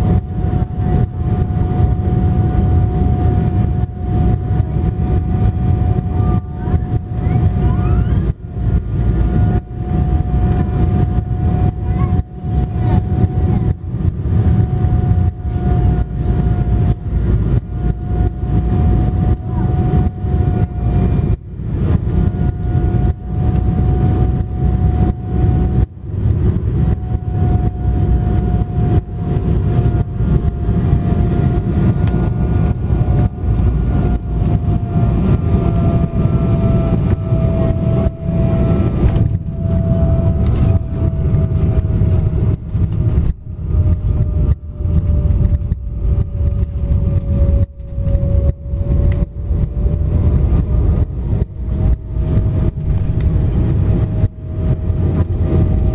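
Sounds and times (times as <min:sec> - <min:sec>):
airliner cabin rumble: 0:00.0 - 0:55.9
jet engine whine: 0:00.0 - 0:55.9.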